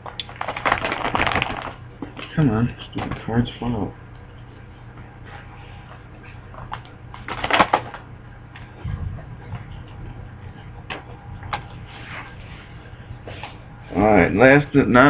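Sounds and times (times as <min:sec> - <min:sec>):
plastic pages rustling: 0:00.0 - 0:02.3, 0:06.7 - 0:08.0.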